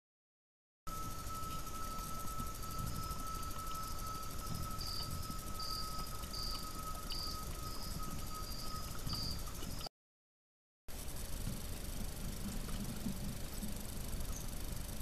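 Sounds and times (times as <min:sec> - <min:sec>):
crickets chirping: 0:00.9 - 0:09.9, 0:10.9 - 0:15.0
steady thin tone: 0:00.9 - 0:09.9.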